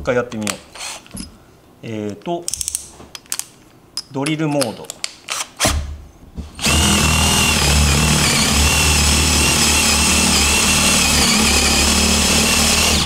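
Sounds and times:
cordless drill boring into wood: 0:06.6 - 0:13.0.

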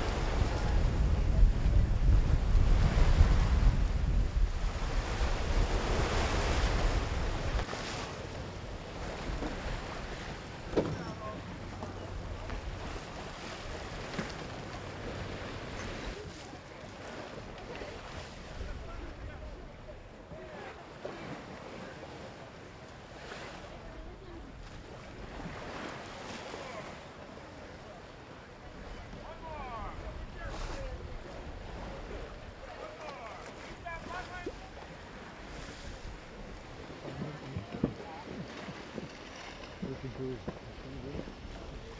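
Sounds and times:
wind buffeting microphone: 0:00.0 - 0:07.7
water rushing along a hull: 0:00.0 - 0:41.9
faint voices: 0:09.0 - 0:25.6, 0:26.4 - 0:41.9.

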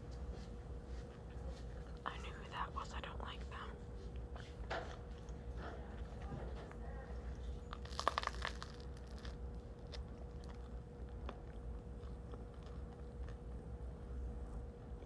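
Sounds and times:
steady low hum: 0:00.0 - 0:15.0
chewing with crackles: 0:00.9 - 0:02.4, 0:03.9 - 0:15.0
biting crusty bread: 0:07.6 - 0:13.9.

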